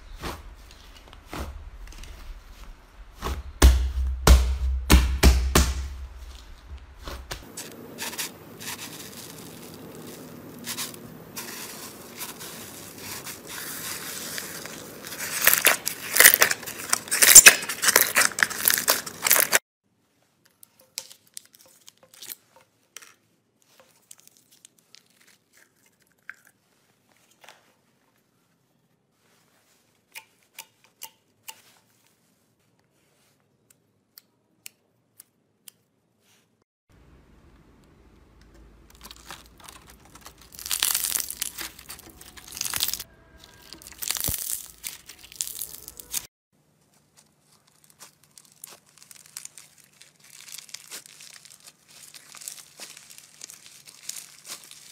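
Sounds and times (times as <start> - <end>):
hands squishing slime: 38.9 - 46.3, 46.9 - 54.9.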